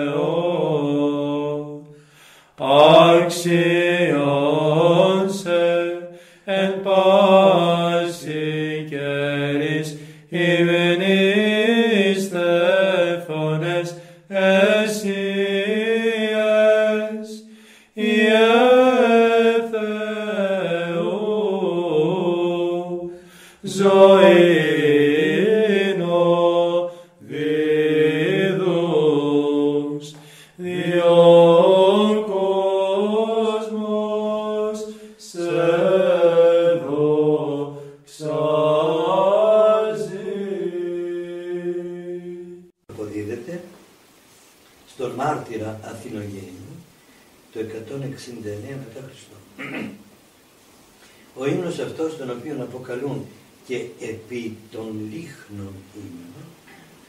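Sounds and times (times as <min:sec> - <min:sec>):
man singing chant: 0:00.0 - 0:01.8, 0:02.6 - 0:42.7.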